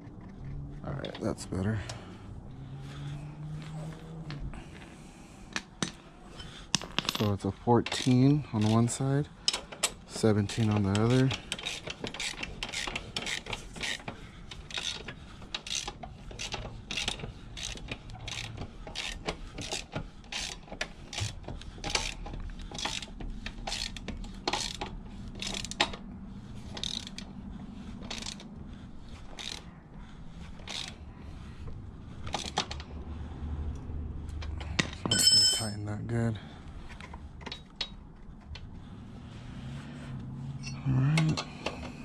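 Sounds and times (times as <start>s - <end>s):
ratchet wrench clicking: 7.9s - 26.0s, 26.7s - 27.3s, 28.0s - 28.5s, 29.3s - 29.7s, 30.6s - 31.0s.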